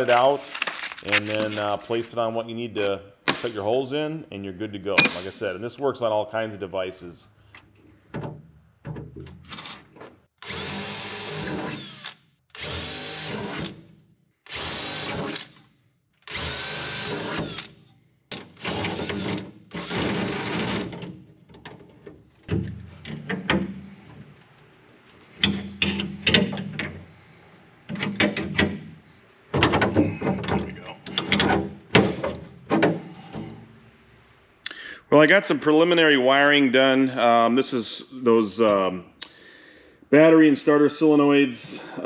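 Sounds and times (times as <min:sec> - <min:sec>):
cordless drill boring metal: 0:10.4 - 0:13.8, 0:14.5 - 0:15.5, 0:16.3 - 0:17.7, 0:18.6 - 0:20.8.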